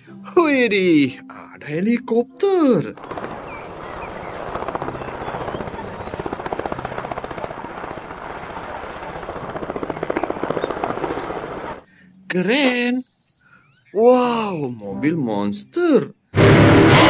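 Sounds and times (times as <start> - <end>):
helicopter rotor chopping: 3.0 - 11.8
turbine noise: 3.0 - 11.8, 16.4 - 17.0.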